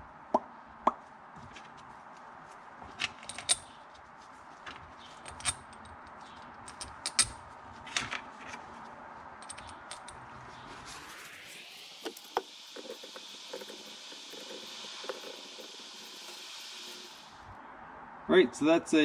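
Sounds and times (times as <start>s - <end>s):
clicks and clinks of metal parts: 3.0s - 3.7s, 4.7s - 8.6s, 9.4s - 10.2s.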